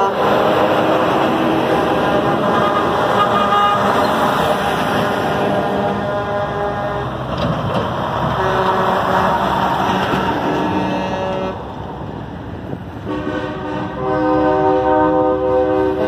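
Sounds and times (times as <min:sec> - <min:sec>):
trucks idling: 0:00.0 - 0:16.0
vehicle horns honking: 0:02.1 - 0:04.3, 0:05.5 - 0:07.2, 0:08.4 - 0:11.6, 0:13.0 - 0:16.0.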